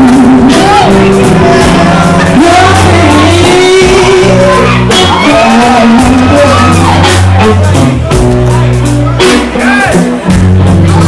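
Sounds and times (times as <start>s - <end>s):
electric guitars bending notes: 0.0s - 11.0s
live blues-rock band: 0.0s - 11.0s.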